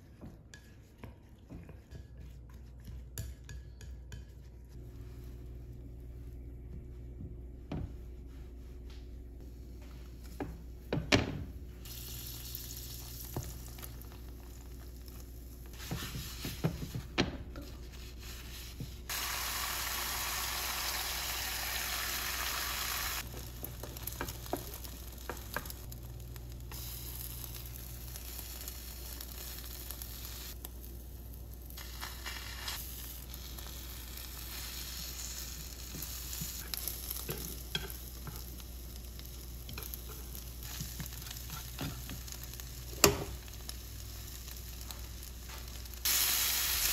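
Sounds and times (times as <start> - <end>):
food sizzling in a frying pan: 11.8 - 16.9, 19.1 - 46.9
chopsticks tapping a pan: 23.6 - 25.8, 37.2 - 38.5, 39.6 - 42.4, 43.0 - 43.4.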